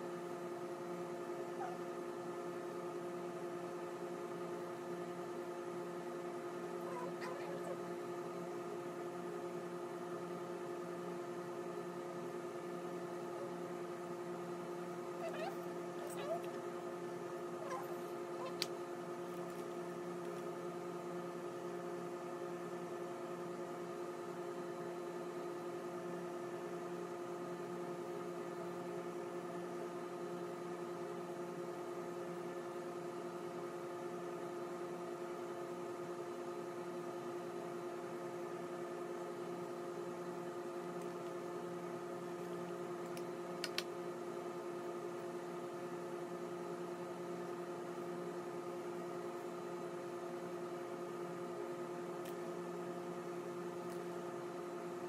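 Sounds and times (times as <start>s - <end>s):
steady machine hum: 0.0s - 55.0s
sharp click: 43.1s - 43.9s.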